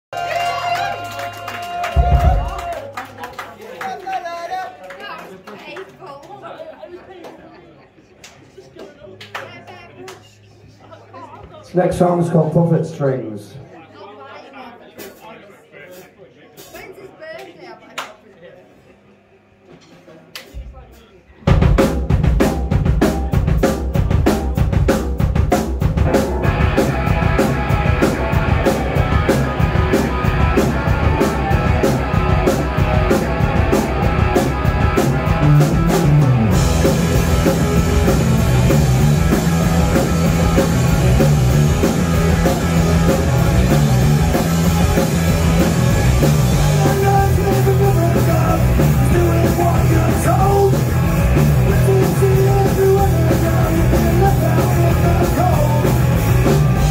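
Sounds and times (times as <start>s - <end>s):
punk rock band playing: 1.4s - 2.8s, 21.5s - 56.9s
fast drum beat: 2.0s - 2.7s, 21.5s - 56.9s.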